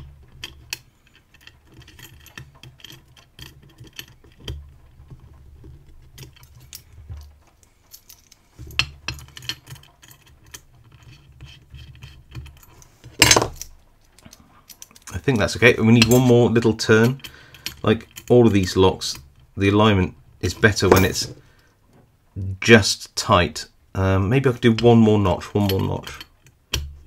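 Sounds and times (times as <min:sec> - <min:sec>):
fingers rubbing on metal parts: 0:08.0 - 0:13.2.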